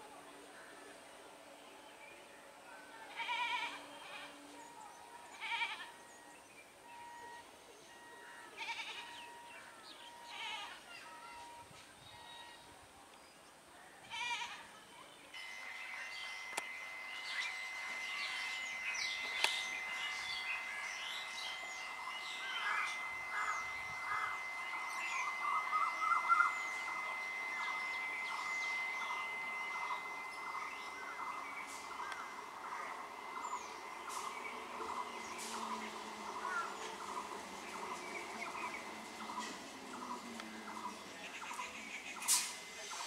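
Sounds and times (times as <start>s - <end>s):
birds chirping: 0.0s - 13.7s, 14.8s - 43.0s
goat bleating: 3.1s - 4.4s, 5.4s - 6.0s, 8.6s - 9.2s
steady high-pitched tone: 15.3s - 43.0s.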